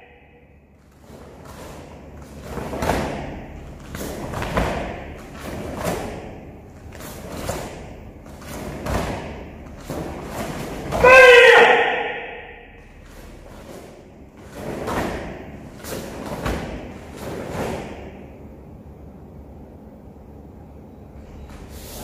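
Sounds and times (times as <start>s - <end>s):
bare feet thudding on foam mats: 1.2s - 11.1s, 13.3s - 18.2s.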